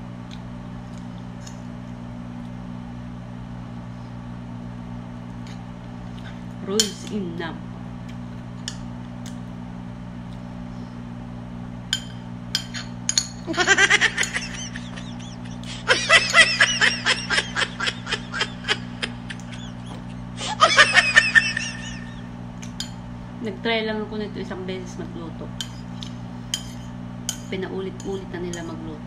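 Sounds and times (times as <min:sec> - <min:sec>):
steady low hum: 0:00.0 - 0:29.0
rapid giggling: 0:13.5 - 0:22.3.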